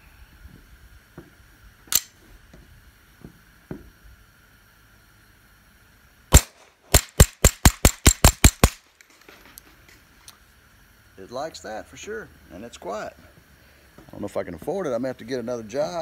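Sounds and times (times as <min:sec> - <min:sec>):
suppressed pistol shots: 0:06.3 - 0:08.8
sharp click: 0:06.3 - 0:09.1.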